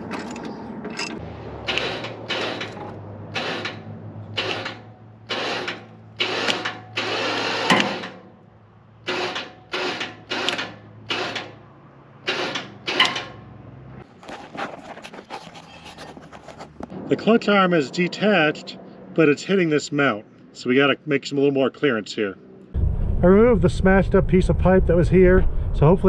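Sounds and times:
metal mechanism clattering: 0.0s - 3.8s
low hum: 22.4s - 26.0s.

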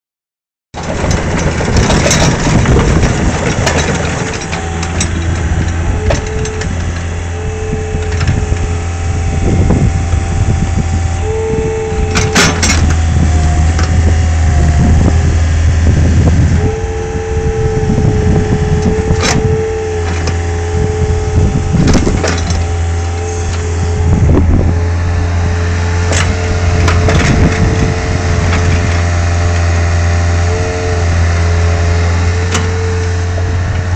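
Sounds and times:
metal clanks: 0.8s - 7.4s, 12.1s - 14.1s, 21.7s - 29.7s
diesel engine running: 0.8s - 33.9s
hydraulic whine: 0.8s - 33.9s.

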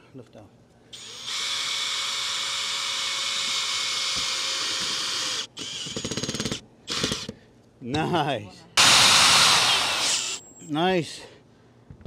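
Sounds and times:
cordless drill driving screw: 1.0s - 7.4s, 8.8s - 10.4s.

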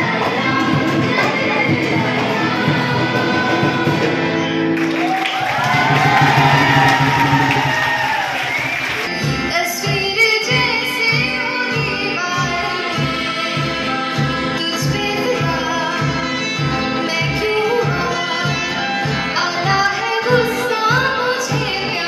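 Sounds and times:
woman singing into microphone: 0.0s - 4.6s, 9.1s - 22.0s
strummed guitars: 0.0s - 22.0s
audience clapping: 4.8s - 9.2s.

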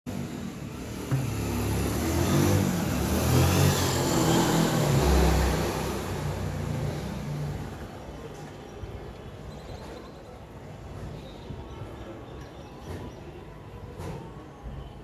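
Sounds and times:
motor vehicle passing by: 0.1s - 7.9s.

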